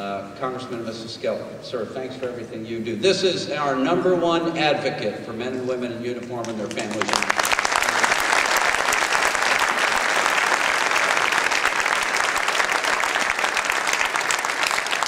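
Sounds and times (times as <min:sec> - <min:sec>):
audience applauding: 0:06.4 - 0:15.0.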